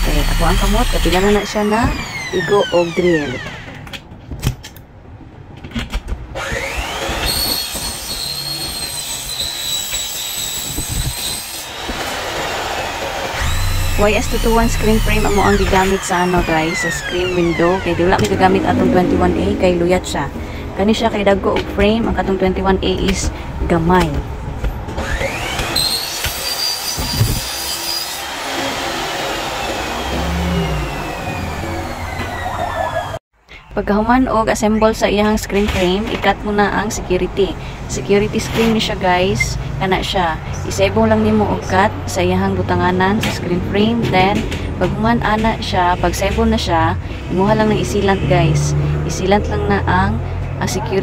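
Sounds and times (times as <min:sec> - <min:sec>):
electric drill whine: 0:00.0 - 0:03.7, 0:06.4 - 0:17.9, 0:25.0 - 0:33.2
drill rough hiss: 0:06.5 - 0:17.4.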